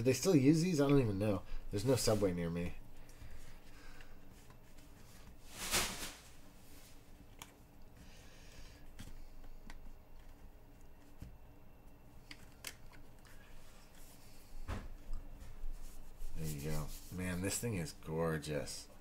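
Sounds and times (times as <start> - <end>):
cards rubbing on leather: 15.7 - 17.5.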